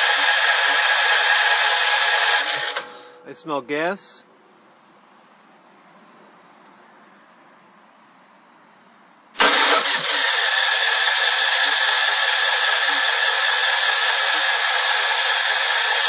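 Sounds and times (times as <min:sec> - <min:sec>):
generator starter cranking engine: 0:00.0 - 0:03.2, 0:09.4 - 0:16.0.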